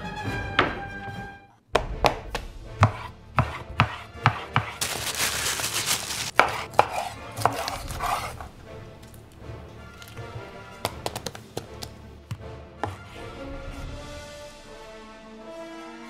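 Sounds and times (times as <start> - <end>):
plastic bag crinkling: 4.8 - 6.4.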